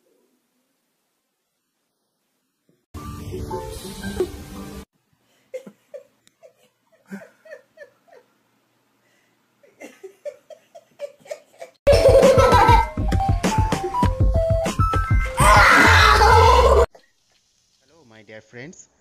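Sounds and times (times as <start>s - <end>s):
person laughing: 5.5s - 8.3s, 9.6s - 12.9s.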